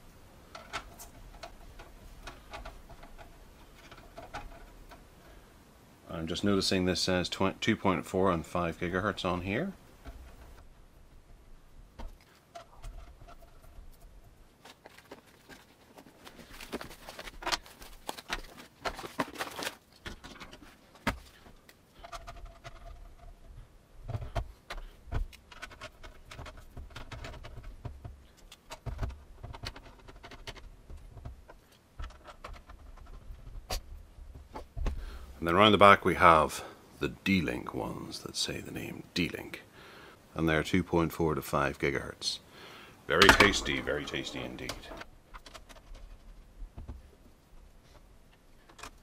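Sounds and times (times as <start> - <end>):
plastic scraping on metal: 0.5 - 5.4, 24.1 - 35.0, 43.1 - 47.0.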